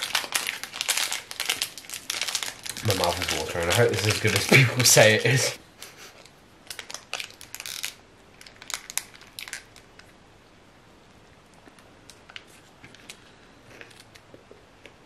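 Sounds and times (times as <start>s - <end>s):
plastic wrapper crinkling: 0.0s - 5.5s, 6.2s - 10.1s.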